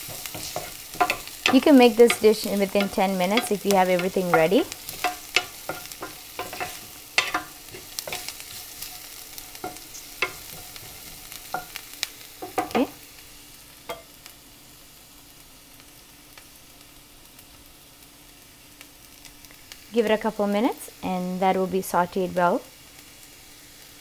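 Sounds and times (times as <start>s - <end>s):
wooden spatula scraping pan: 0.0s - 11.8s
oil sizzling in pan: 0.0s - 24.0s.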